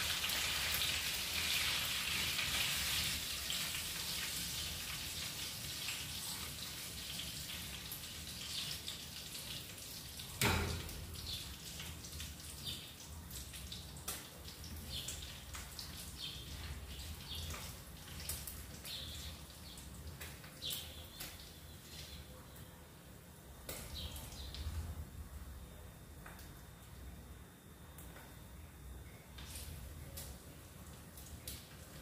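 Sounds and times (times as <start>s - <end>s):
fish sizzling in a frying pan: 0.0s - 10.2s.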